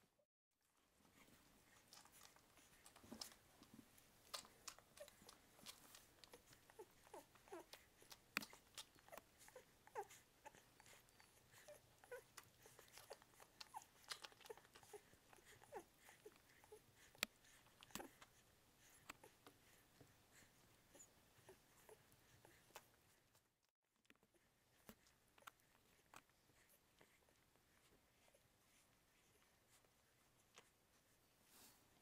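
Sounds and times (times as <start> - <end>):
puppies suckling: 0.7 - 32.0
puppies squeaking and whimpering: 4.4 - 16.8.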